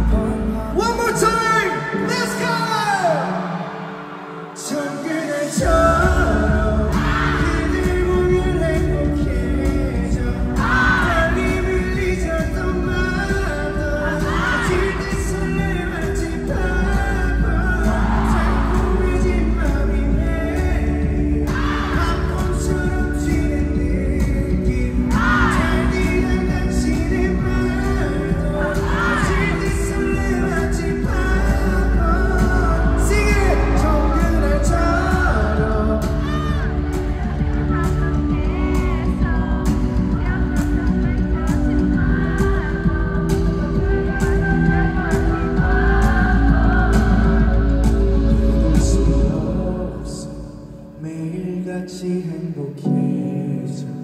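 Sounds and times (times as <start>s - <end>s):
live pop band: 0.0s - 54.0s
man singing into microphone: 0.0s - 54.0s
crowd yelling: 1.7s - 5.6s, 17.7s - 19.8s, 28.7s - 30.2s, 32.6s - 48.1s.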